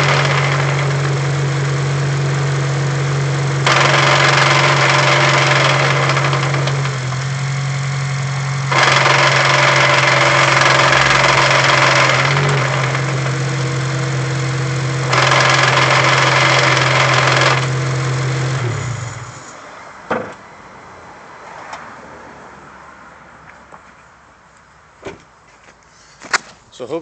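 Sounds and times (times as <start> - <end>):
loud transmission grinding: 0.0 - 20.4
single knock: 20.1 - 20.4.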